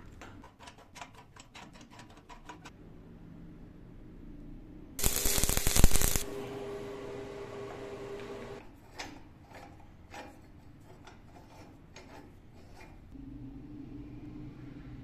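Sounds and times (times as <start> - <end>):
arc welding crackling: 5.0 - 6.4
steady hum: 5.0 - 8.6.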